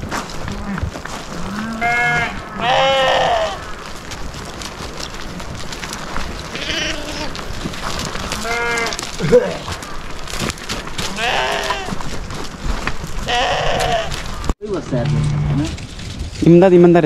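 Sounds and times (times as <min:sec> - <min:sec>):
sheep and goats bleating: 0:00.5 - 0:03.6, 0:06.4 - 0:07.5, 0:08.1 - 0:10.3, 0:11.0 - 0:12.1, 0:13.2 - 0:14.3.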